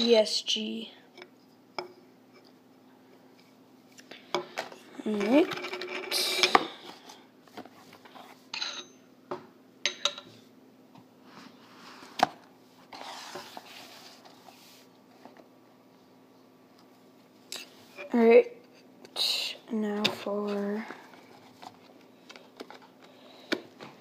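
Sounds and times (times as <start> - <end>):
cardboard rustling scrape: 12.9 - 14.9.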